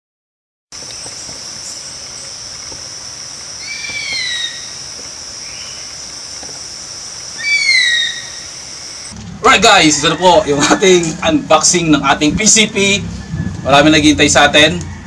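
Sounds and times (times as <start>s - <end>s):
insect drone: 0.8s - 9.2s
falling screeches: 3.6s - 4.8s, 7.4s - 9.1s.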